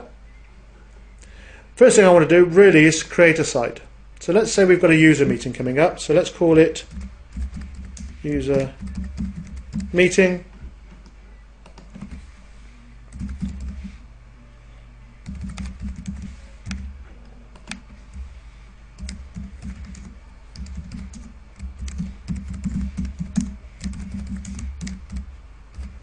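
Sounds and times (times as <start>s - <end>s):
typing on computer keyboard: 6.8s - 9.9s, 13.1s - 13.9s, 15.2s - 16.9s, 19.0s - 26.0s.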